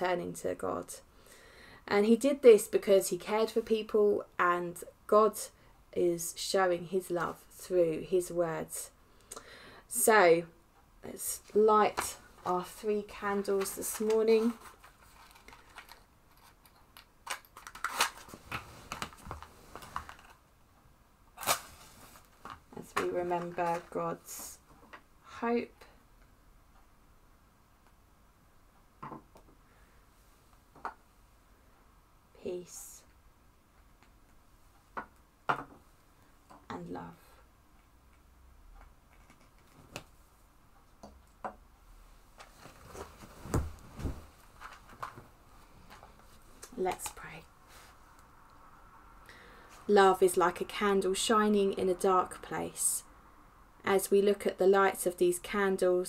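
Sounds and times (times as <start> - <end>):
soft thumps on sofa: 43.1 - 44.4.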